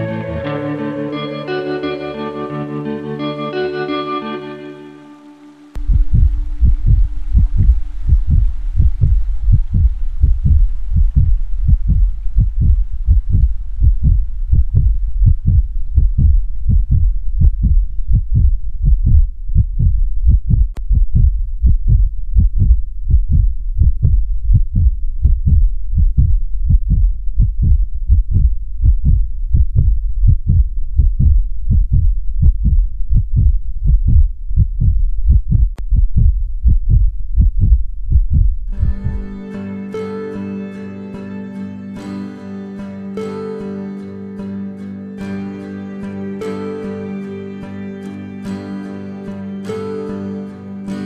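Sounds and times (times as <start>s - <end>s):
heartbeat thuds: 5.8s - 39.4s.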